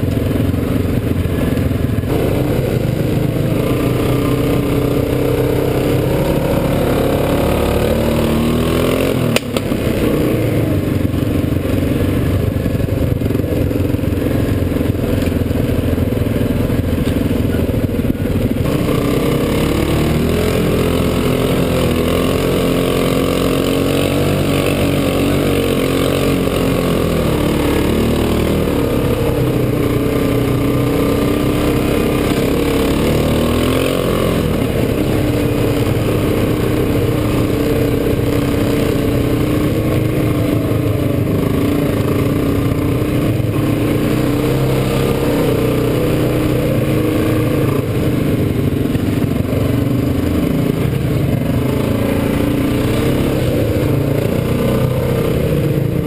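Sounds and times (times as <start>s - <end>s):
quad bike engine revving: 0.0s - 56.0s.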